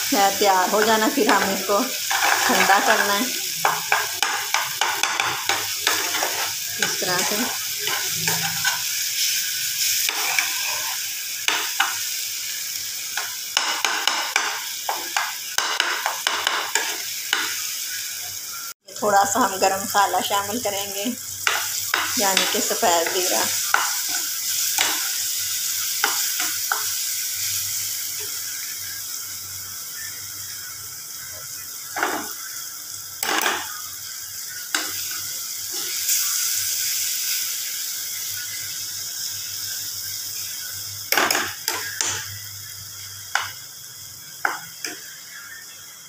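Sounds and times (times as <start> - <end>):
food sizzling in oil: 0.0 - 46.0
spoon scraping a pan: 0.7 - 12.0, 13.1 - 17.7, 21.4 - 27.1, 31.9 - 32.4, 33.2 - 33.8, 41.1 - 42.3.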